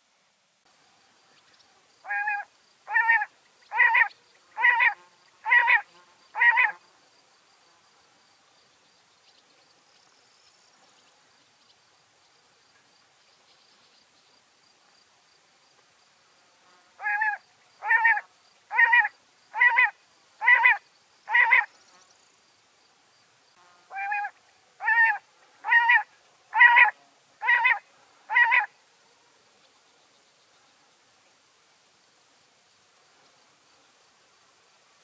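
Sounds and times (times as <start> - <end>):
quail calling: 2.0 - 6.7, 17.0 - 21.7, 23.9 - 28.7.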